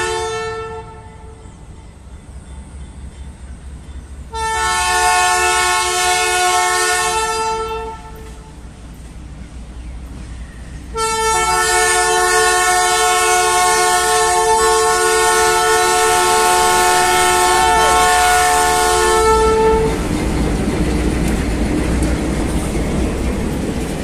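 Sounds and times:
locomotive air horn chord: 0.0s - 1.6s, 4.3s - 8.6s, 10.9s - 20.0s
locomotive diesel engines: 0.0s - 24.0s
train wheels rolling on rails: 0.0s - 24.0s.

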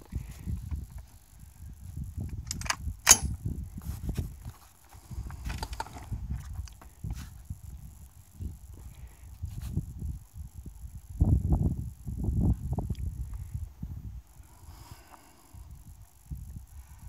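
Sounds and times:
wind buffeting microphone: 0.0s - 17.0s
handling clicks: 2.4s - 3.3s
sharp crack: 2.6s - 3.4s.

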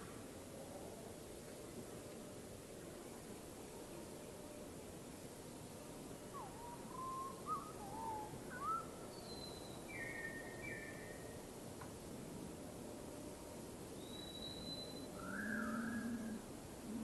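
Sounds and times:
faint steady hiss: 0.0s - 17.0s
bird whistling: 6.6s - 10.9s, 14.0s - 16.0s.

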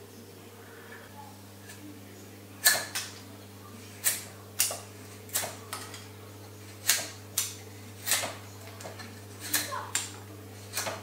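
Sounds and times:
steady low hum: 0.0s - 11.0s
knife slicing wood shavings: 10.6s - 11.0s.

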